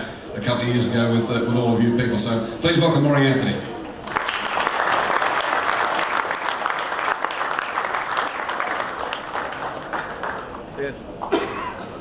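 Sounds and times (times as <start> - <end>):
audience applauding: 4.0 - 11.4.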